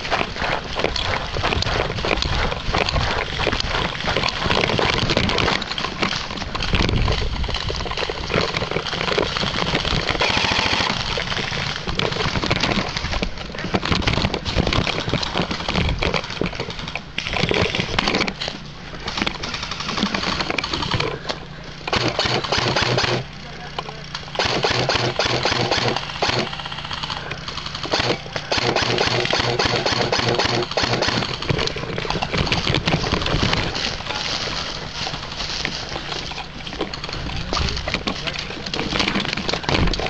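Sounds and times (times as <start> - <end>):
gear rustling and clattering: 0.0 - 40.0
footsteps crunching through dry leaves: 31.8 - 36.9.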